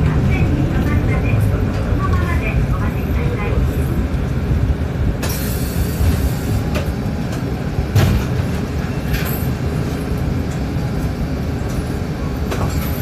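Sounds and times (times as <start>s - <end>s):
bus engine and road rumble: 0.0s - 13.0s
hiss: 5.2s - 6.6s.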